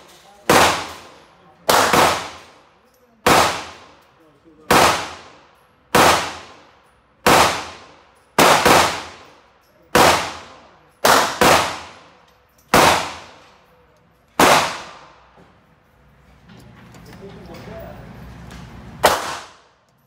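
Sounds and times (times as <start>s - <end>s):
gunshots echoing in indoor range: 0.4s - 15.4s, 19.0s - 19.9s.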